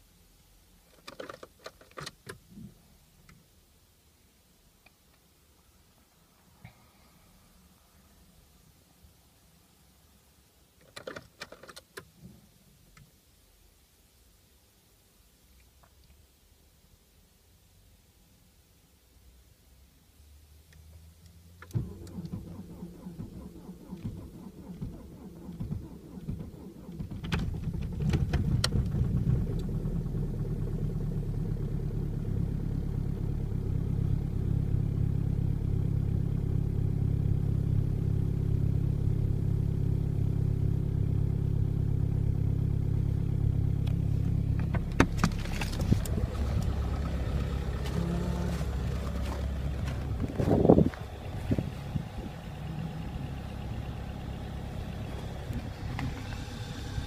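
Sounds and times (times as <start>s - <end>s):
diesel engine idling: 21.8s - 57.0s.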